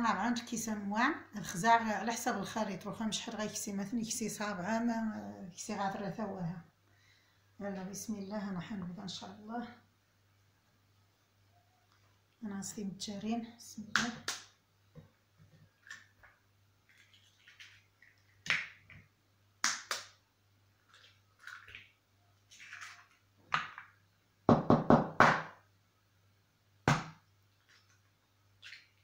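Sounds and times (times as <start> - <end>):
faint steady hum: 0.0 - 29.0
eggs cracked on plastic bowl: 22.6 - 24.0.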